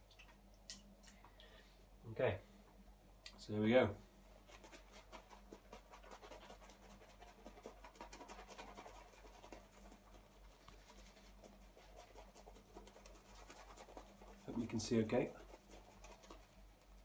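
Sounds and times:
shaving brush scratching on face: 0:04.4 - 0:17.0.

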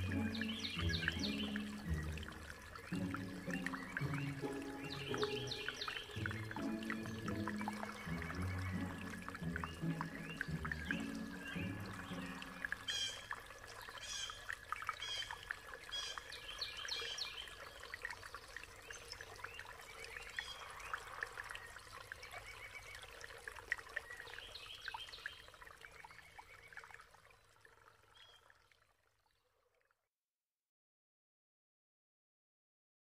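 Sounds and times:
high bird chirps: 0:00.0 - 0:02.2, 0:02.9 - 0:13.2
water trickling and pouring: 0:00.0 - 0:30.0.

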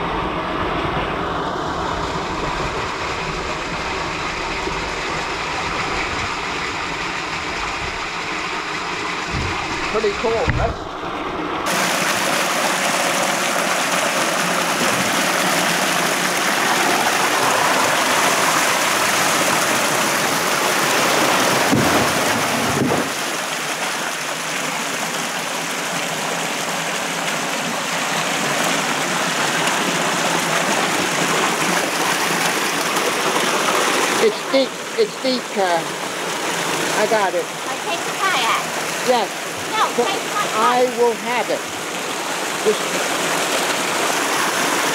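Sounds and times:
water rushing through pipe: 0:00.0 - 0:44.9
low thumps: 0:09.2 - 0:11.5, 0:21.6 - 0:23.2.

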